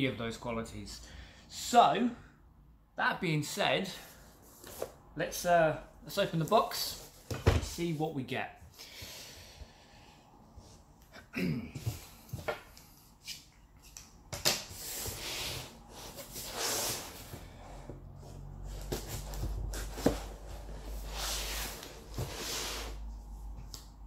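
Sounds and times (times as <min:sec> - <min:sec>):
cardboard and tape rustling: 0:18.3 - 0:22.9.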